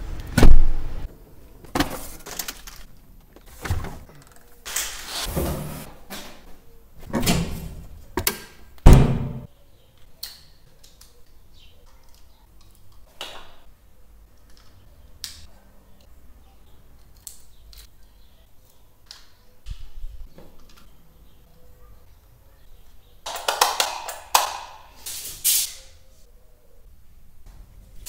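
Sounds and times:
loud thumps: 8.8s - 9.5s.

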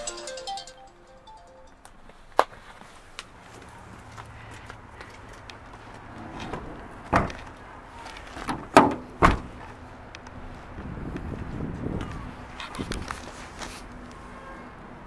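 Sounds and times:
car door shutting thump: 8.8s - 9.5s.

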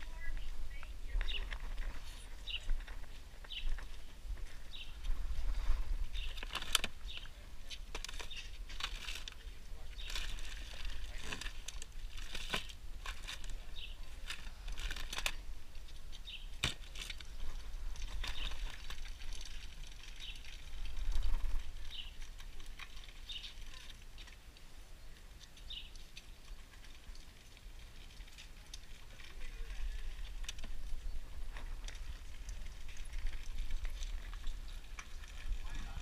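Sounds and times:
wind buffeting microphone: 0.0s - 7.6s, 29.7s - 36.0s.

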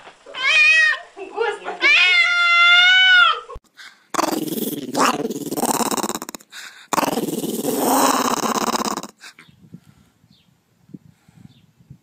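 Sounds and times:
cat meowing: 0.4s - 1.0s
dog growling: 4.1s - 9.3s.

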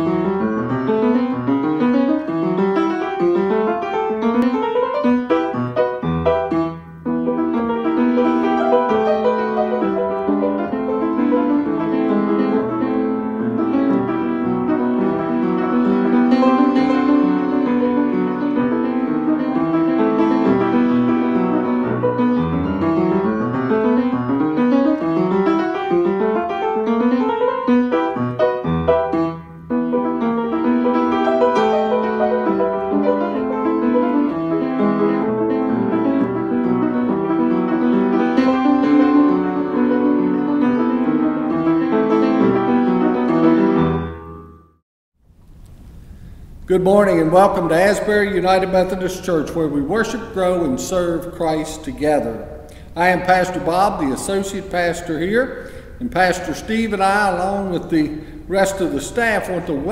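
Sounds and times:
piano arpeggios over bass notes: 0.0s - 44.8s.

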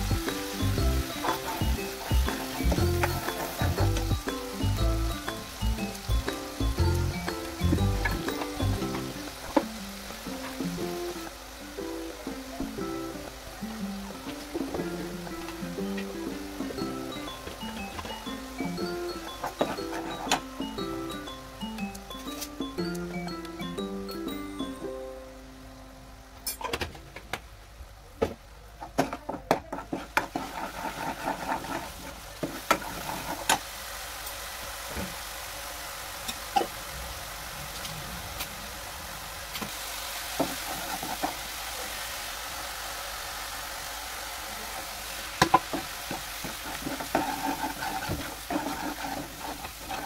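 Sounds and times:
paste sizzling in oil: 0.0s - 22.7s, 29.7s - 50.0s
ladle knocking and scraping pan: 29.7s - 33.6s, 45.4s - 50.0s.

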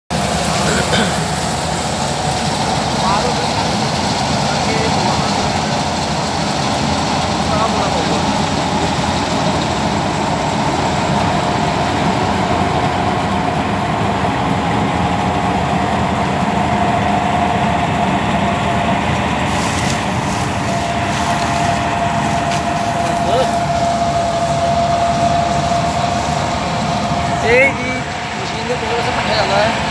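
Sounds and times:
diesel engine running: 0.1s - 29.9s
steady whine: 0.1s - 29.9s.

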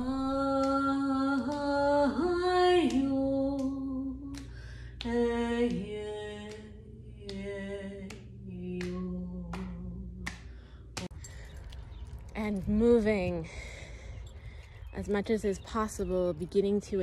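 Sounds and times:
woman singing wordless notes: 0.0s - 10.4s.

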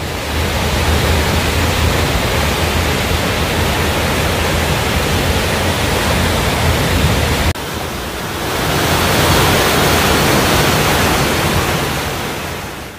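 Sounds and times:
white water through rock chute: 0.0s - 12.9s.

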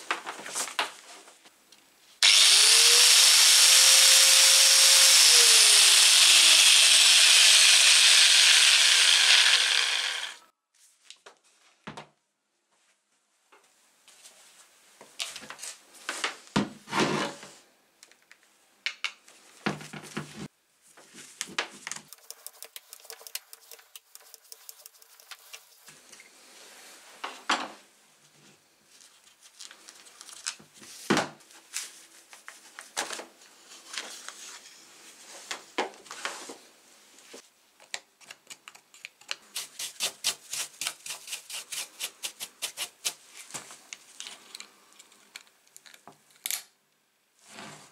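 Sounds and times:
bristle brush strokes: 22.1s - 27.1s.

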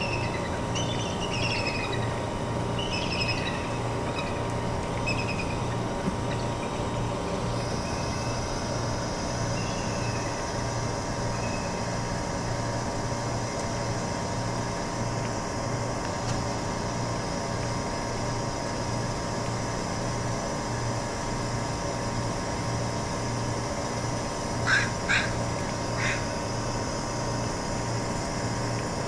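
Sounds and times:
pulsing machine hum: 0.0s - 29.0s
crow cawing: 24.6s - 25.4s, 26.0s - 26.3s.

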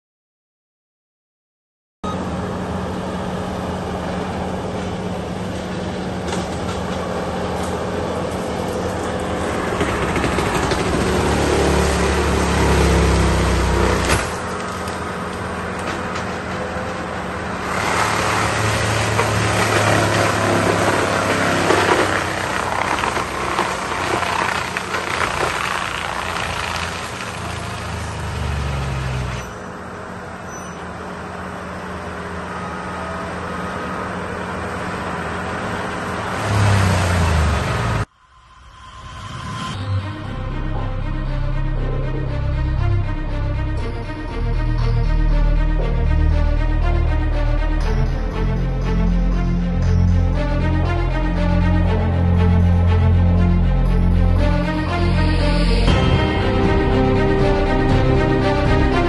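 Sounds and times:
mulcher engine running: 2.1s - 36.4s, 40.1s - 59.0s
mulching head grinding brush: 6.3s - 29.5s.

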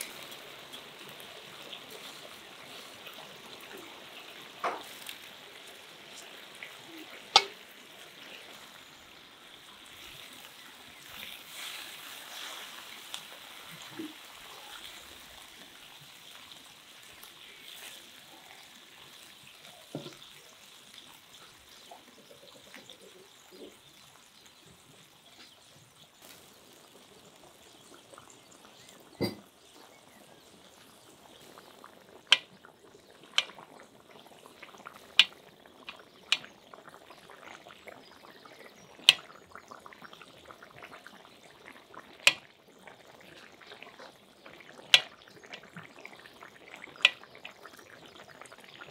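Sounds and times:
utensil knocking pot bottom: 7.3s - 7.6s, 29.2s - 29.4s.

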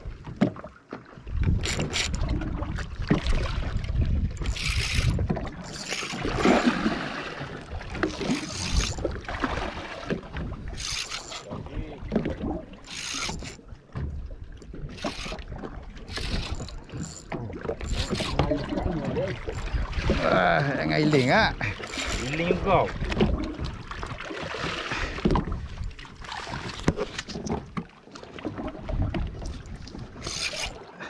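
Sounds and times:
water splashing against hull: 0.0s - 31.0s
wind rumble on microphone: 1.2s - 5.6s.

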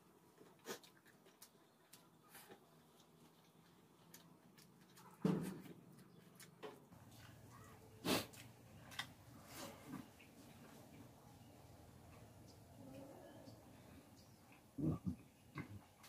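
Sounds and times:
person eating with mouth sounds: 14.6s - 16.0s.

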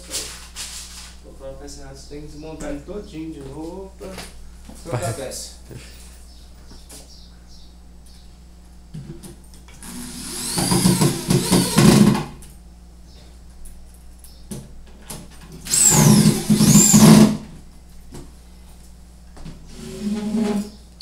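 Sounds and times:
electric drill driving screws: 9.8s - 12.4s, 15.6s - 17.4s.

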